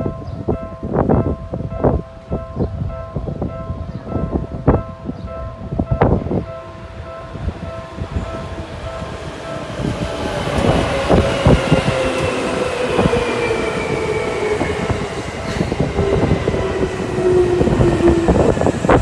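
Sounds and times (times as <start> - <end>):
train motor whine: 8.0 - 19.0.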